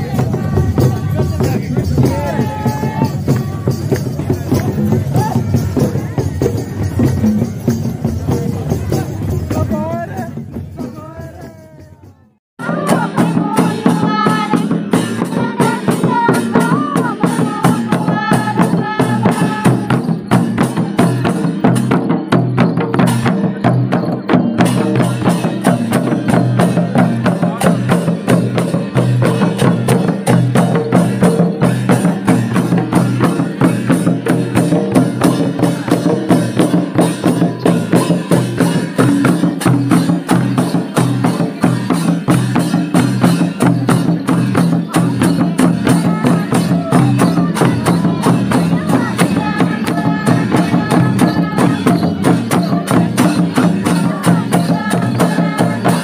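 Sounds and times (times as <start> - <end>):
hand drums beating rhythm: 0.0 - 12.0, 12.6 - 56.0
person singing: 10.8 - 20.1, 44.6 - 56.0.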